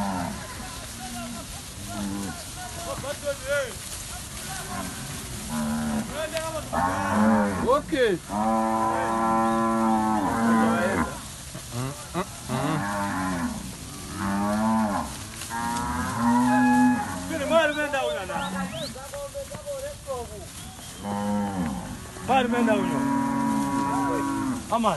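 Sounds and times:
cattle mooing: 4.6s - 7.7s, 8.3s - 18.9s, 21.0s - 24.7s.

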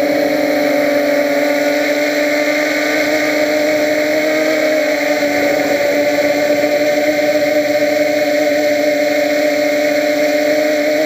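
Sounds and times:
quadcopter propellers buzzing: 0.0s - 11.0s.

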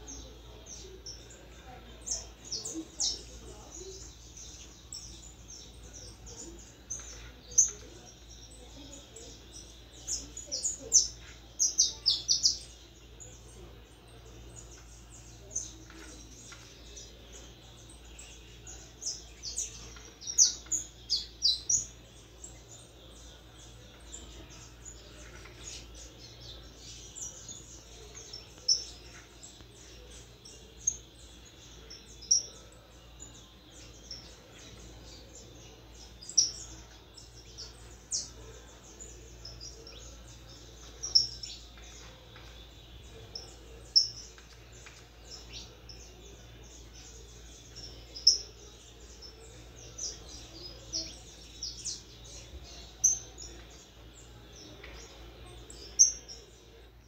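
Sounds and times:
finch chirping: 0.0s - 57.0s.

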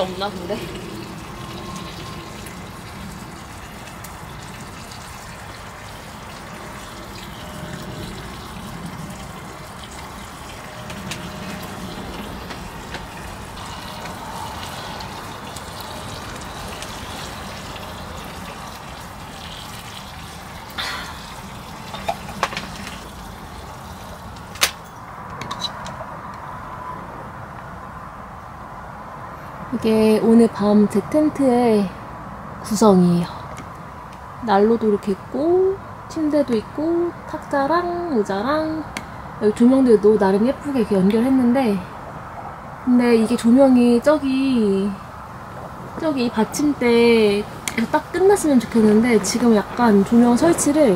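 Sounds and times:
rain on a canvas tent: 0.0s - 24.7s.

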